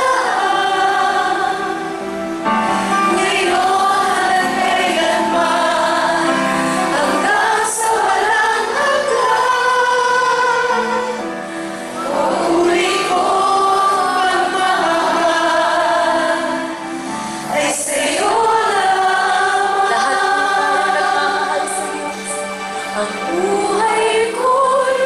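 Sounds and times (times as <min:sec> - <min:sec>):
worship team singing: 0:00.0 - 0:25.0
live band accompaniment: 0:19.9 - 0:24.5.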